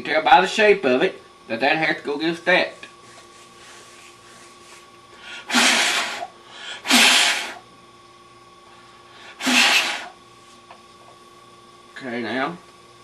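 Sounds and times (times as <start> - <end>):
sharp bursts of breath: 5.2 - 7.6, 9.2 - 10.2.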